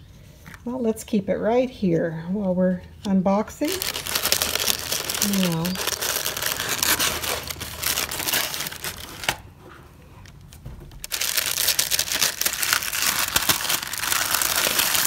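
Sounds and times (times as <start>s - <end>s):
paper crinkling: 3.6s - 15.0s.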